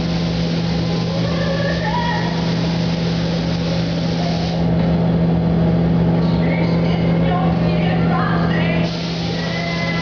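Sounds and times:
ventilation fans humming: 0:00.0 - 0:10.0
hiss of moving air: 0:08.9 - 0:09.8.

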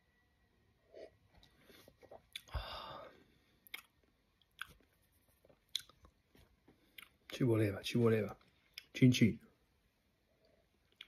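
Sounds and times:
person gulping: 0:01.0 - 0:02.9
lip smacks: 0:01.4 - 0:02.6, 0:03.6 - 0:06.2.

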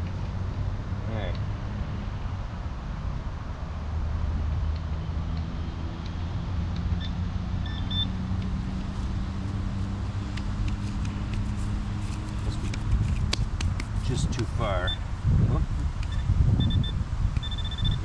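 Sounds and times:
engine humming: 0:00.0 - 0:18.0
short high beeps: 0:16.1 - 0:18.0.

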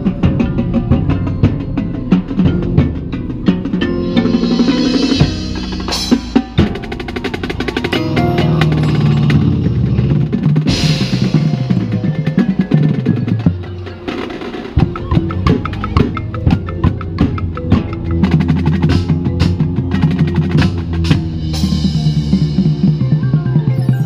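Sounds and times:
mallet percussion: 0:00.0 - 0:24.0
marching band playing: 0:00.0 - 0:24.0
cymbal crash: 0:04.0 - 0:11.7.

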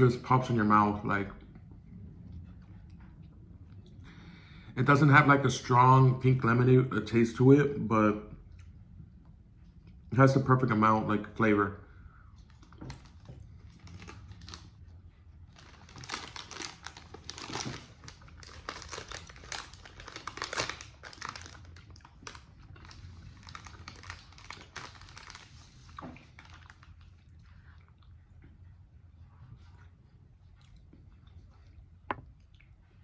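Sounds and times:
plastic wrapper crinkling: 0:12.5 - 0:14.8, 0:15.5 - 0:27.1.

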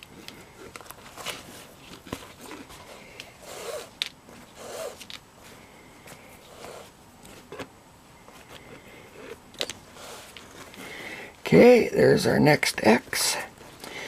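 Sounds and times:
cord rubbing on leather: 0:00.1 - 0:07.7, 0:08.3 - 0:10.9.

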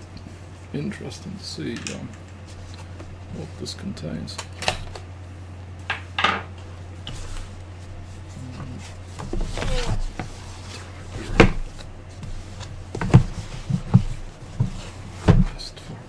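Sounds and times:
cardboard box scraping and rustling: 0:08.2 - 0:15.4.

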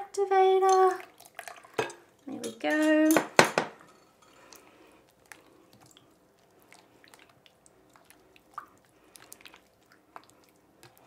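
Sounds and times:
hand kneading sticky slime: 0:05.2 - 0:11.0.

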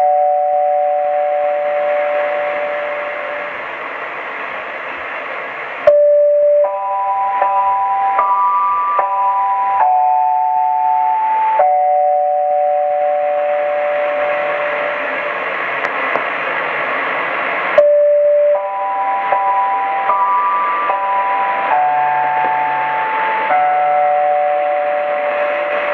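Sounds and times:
radio hiss: 0:01.0 - 0:06.7, 0:13.3 - 0:23.6, 0:24.5 - 0:25.9.

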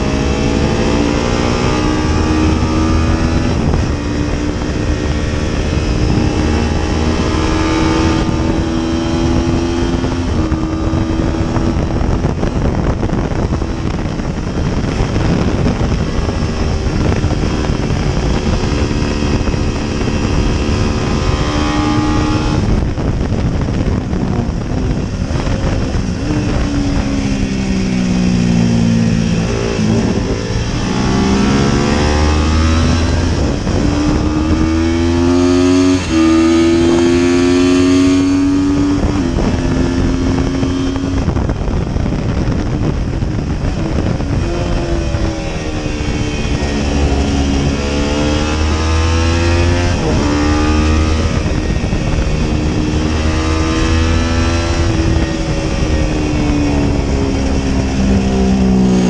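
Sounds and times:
racing motorcycle engine revving: 0:00.0 - 0:59.0
wind rush: 0:00.0 - 0:59.0.

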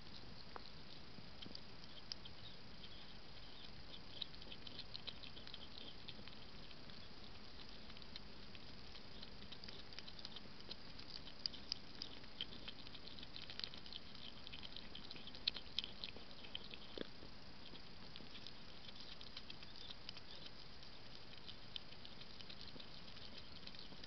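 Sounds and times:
hedgehog chewing clicks: 0:00.0 - 0:24.0.

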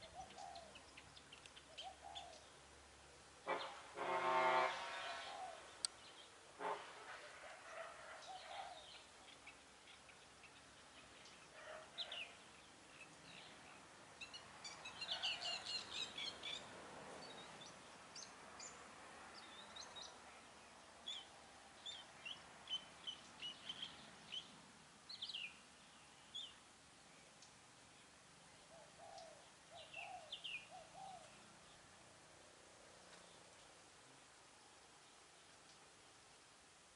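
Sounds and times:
small birds chirping: 0:00.0 - 0:02.8, 0:08.1 - 0:32.0.

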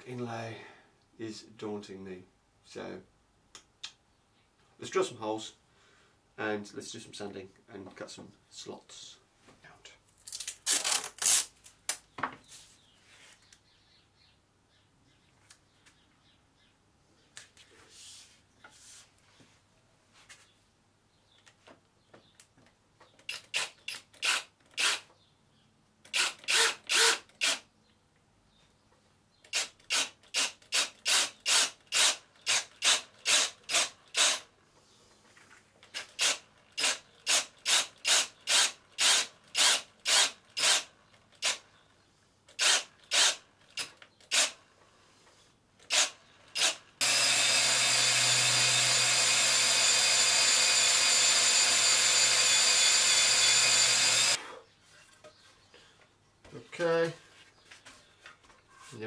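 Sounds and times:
cordless drill boring into wood: 0:23.3 - 0:25.1, 0:26.1 - 0:27.6, 0:29.5 - 0:34.4, 0:36.0 - 0:41.6, 0:42.6 - 0:44.6, 0:45.9 - 0:54.4.

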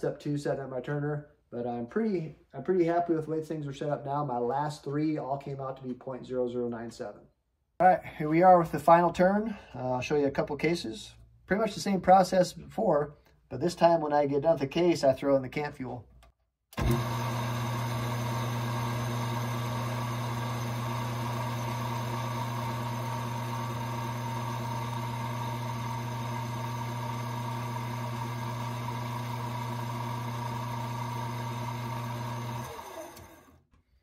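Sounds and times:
lathe motor humming: 0:16.8 - 0:33.6
motor winding down: 0:16.8 - 0:33.6.

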